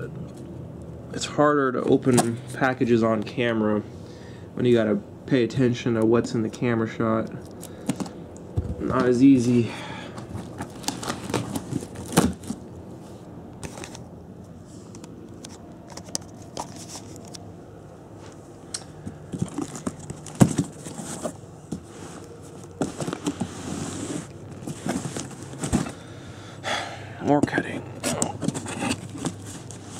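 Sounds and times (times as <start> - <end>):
scrapes and knocks on cardboard: 19.3 - 22.2, 22.8 - 26.0.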